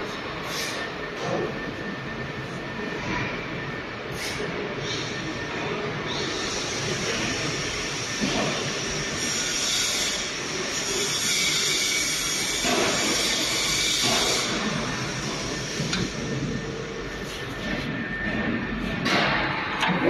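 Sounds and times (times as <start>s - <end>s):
hiss: 0.4s - 0.9s.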